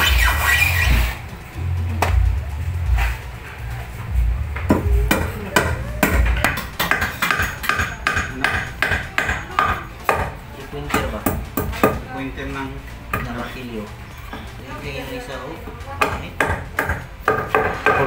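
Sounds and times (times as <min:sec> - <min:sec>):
hammer striking wood: 0:04.6 - 0:12.0, 0:16.0 - 0:18.0.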